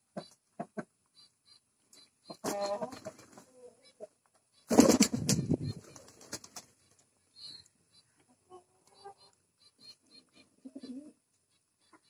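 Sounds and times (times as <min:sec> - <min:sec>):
wings flapping: 0:04.7 - 0:07.0
pigeon cooing: 0:10.4 - 0:11.2.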